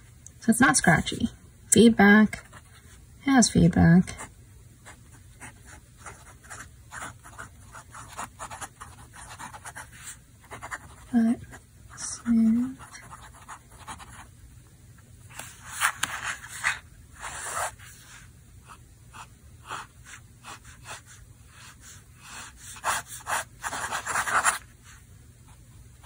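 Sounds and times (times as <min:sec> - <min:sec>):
pen nib scratching on paper: 0:05.4 - 0:11.6, 0:12.2 - 0:14.3, 0:19.1 - 0:24.7.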